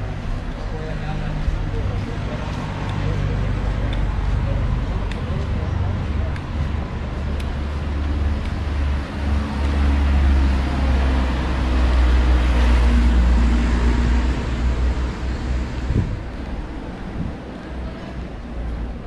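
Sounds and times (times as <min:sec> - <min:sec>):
steady low traffic rumble: 0:00.0 - 0:19.0.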